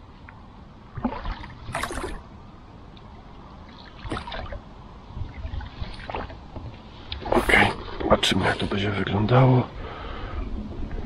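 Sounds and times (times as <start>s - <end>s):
low steady rumble: 0.0s - 11.0s
oars splashing in water: 0.9s - 2.3s, 3.5s - 8.2s.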